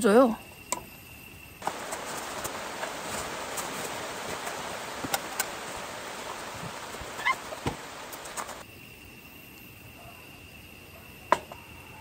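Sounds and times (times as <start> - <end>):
light rain falling: 1.6 - 8.6.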